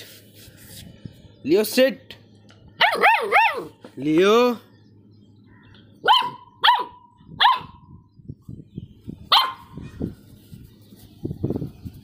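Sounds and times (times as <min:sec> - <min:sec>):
puppy barking: 0:02.8 - 0:03.8, 0:06.0 - 0:07.9, 0:09.3 - 0:10.0.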